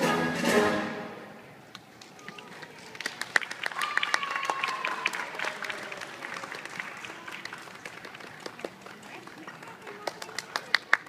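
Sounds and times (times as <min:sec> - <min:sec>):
audience applauding: 0:02.0 - 0:11.0.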